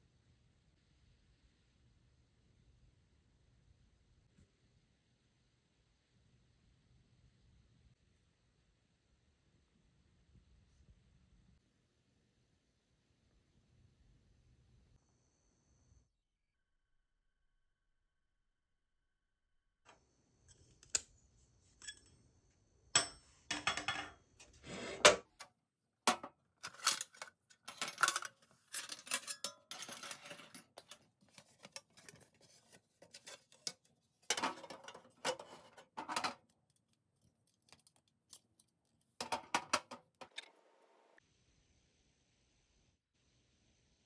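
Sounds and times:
metal cookware clinking and scraping: 0:21.8 - 0:22.2, 0:23.0 - 0:25.2, 0:26.1 - 0:36.4.

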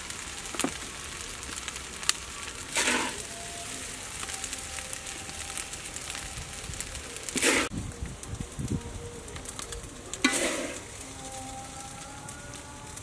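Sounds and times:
rice sizzling in a wok: 0:00.0 - 0:13.0
wok scrape and toss: 0:02.6 - 0:03.9, 0:07.3 - 0:07.7, 0:10.2 - 0:11.0.

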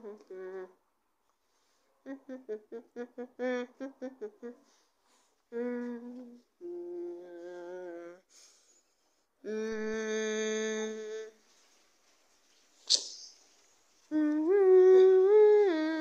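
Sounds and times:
person humming: 0:00.0 - 0:00.8, 0:02.0 - 0:04.6, 0:05.5 - 0:08.3, 0:09.4 - 0:11.4, 0:14.1 - 0:16.0.

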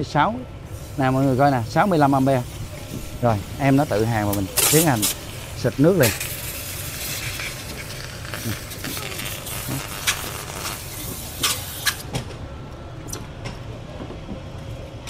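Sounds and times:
water spraying: 0:00.7 - 0:12.1
welding arc hissing and crackling: 0:00.7 - 0:12.1.

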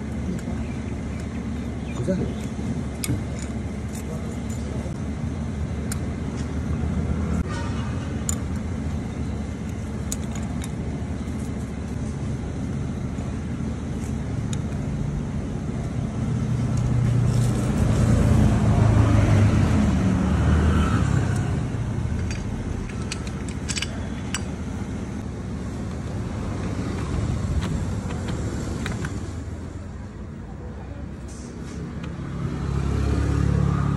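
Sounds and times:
traffic rumble: 0:00.0 - 0:33.9
metallic clicks of clutch plates: 0:02.0 - 0:04.8, 0:09.6 - 0:11.6, 0:22.1 - 0:24.8.

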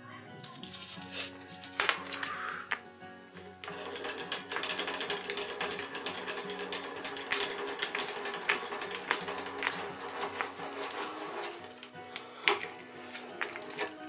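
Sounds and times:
hand drill clicking into wood: 0:03.6 - 0:14.0.

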